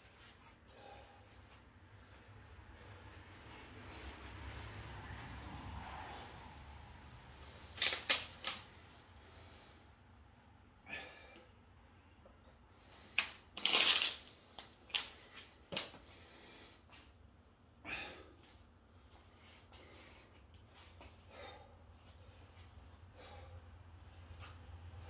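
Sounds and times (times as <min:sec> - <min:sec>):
plastic bottle crackling: 0:13.6 - 0:14.3.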